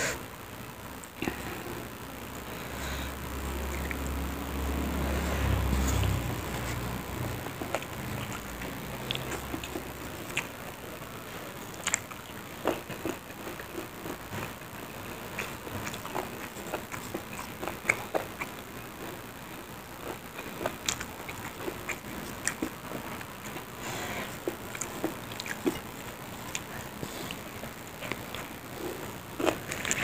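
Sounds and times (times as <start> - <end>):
steady hiss: 0.0 - 30.0
person chewing and mouth smacks: 3.5 - 4.2, 5.0 - 10.6, 11.8 - 14.6, 15.3 - 18.7, 20.0 - 30.0.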